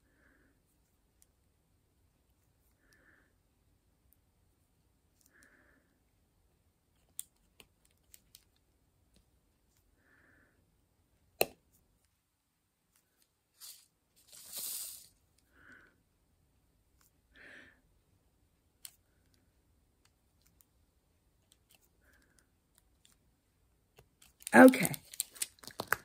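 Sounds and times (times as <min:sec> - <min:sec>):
scraping rustle: 0:13.6 - 0:15.2.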